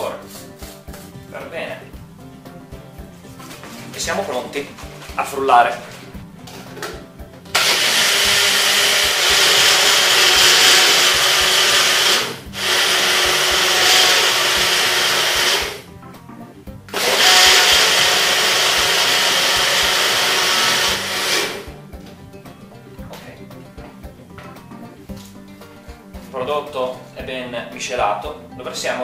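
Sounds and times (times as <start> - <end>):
blender motor whirring: 7.5 - 15.8, 16.9 - 21.7.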